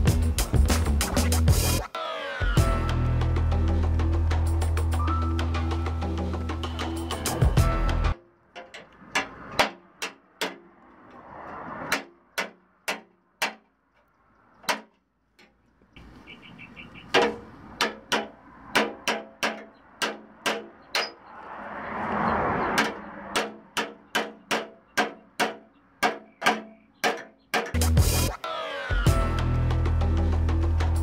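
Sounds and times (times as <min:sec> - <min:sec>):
hammer tapping sheet metal: 0:08.5 - 0:10.7, 0:11.9 - 0:13.7, 0:17.1 - 0:21.2, 0:22.8 - 0:27.8.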